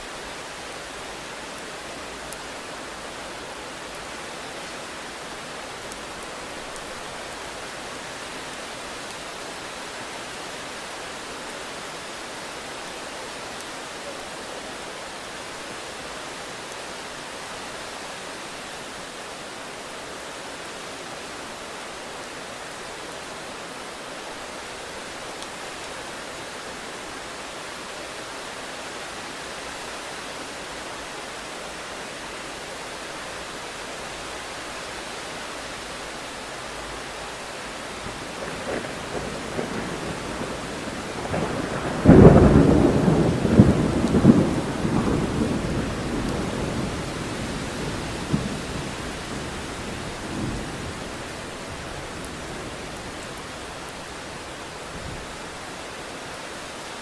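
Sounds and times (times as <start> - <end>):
heavy rain falling: 0.0 - 57.0
thunder rumbling: 38.0 - 53.2.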